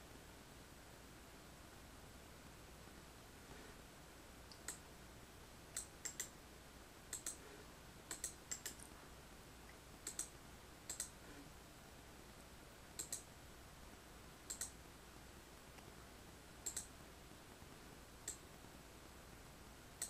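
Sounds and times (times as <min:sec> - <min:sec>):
mouse buttons clicking: 0:05.8 - 0:06.3, 0:07.1 - 0:07.4, 0:08.1 - 0:08.9, 0:10.0 - 0:10.3, 0:10.9 - 0:11.2, 0:13.0 - 0:13.3, 0:14.5 - 0:14.8, 0:16.6 - 0:16.9.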